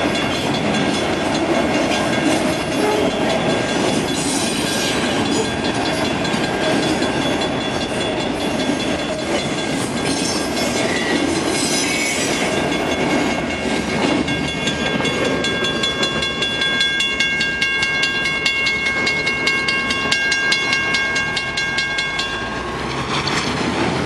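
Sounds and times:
level crossing bells ringing: 0.0s - 11.4s, 12.2s - 23.2s
freight train rumbling: 0.0s - 24.0s.

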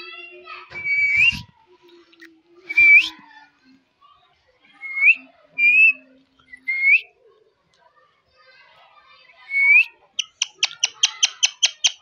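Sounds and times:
parakeet whistling: 0.9s - 1.4s.

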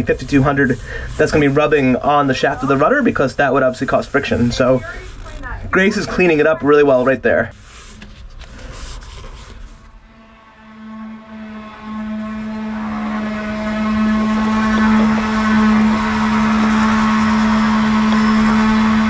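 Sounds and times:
machine drone with hiss: 9.8s - 19.0s.

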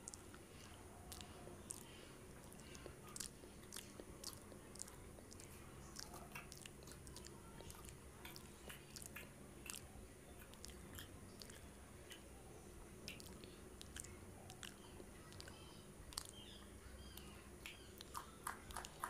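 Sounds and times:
close-up chewing: 0.0s - 19.0s.

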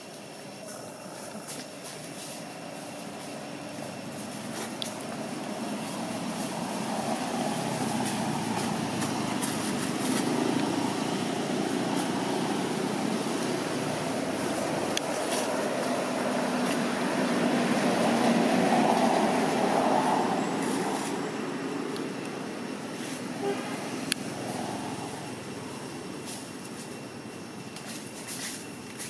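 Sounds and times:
passing vehicle engine and road rumble: 0.0s - 28.3s.

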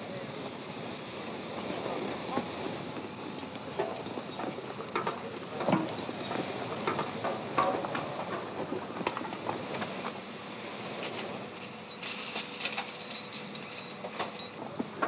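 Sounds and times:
knocks and clanks: 3.7s - 10.0s.

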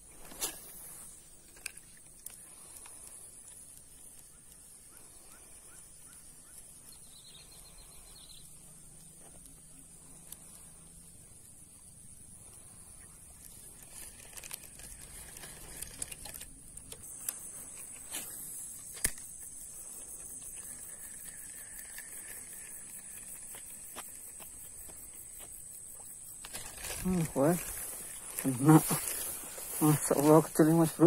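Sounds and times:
grass rustling: 0.0s - 31.0s
high-pitched hiss: 0.0s - 31.0s
fishing rod clicking: 18.8s - 19.5s.

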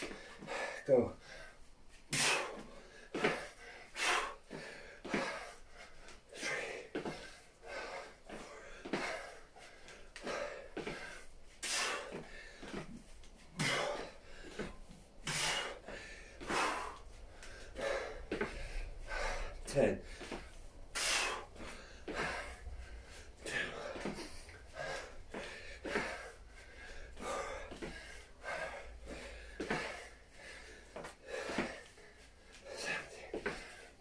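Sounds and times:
man breathing hard: 0.0s - 34.0s.

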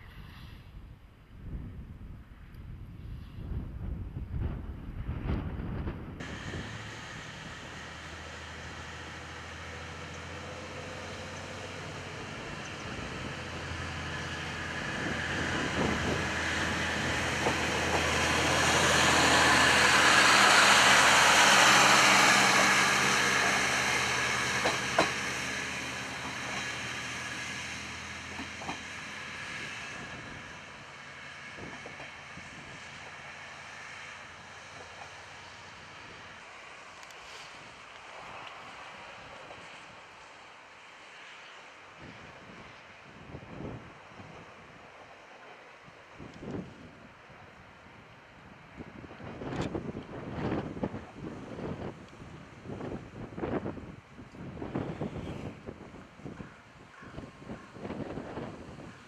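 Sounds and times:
diesel railcar engine running: 2.3s - 59.0s
wheels clicking over rail joints: 6.2s - 33.6s.

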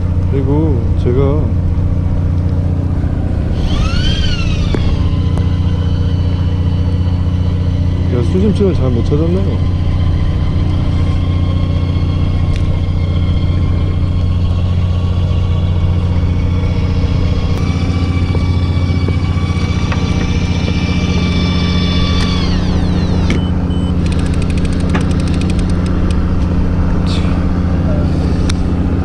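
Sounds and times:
boat engine droning: 0.0s - 29.0s
high whine gliding down: 0.0s - 29.0s
rapid clicking: 17.2s - 26.2s.

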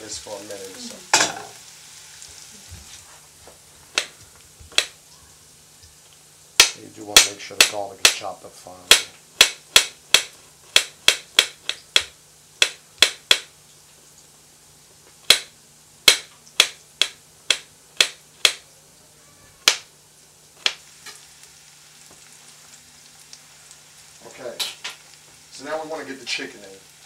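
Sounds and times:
knife chopping on glass board: 4.7s - 5.0s, 6.6s - 8.2s, 8.9s - 13.5s, 15.3s - 18.6s.

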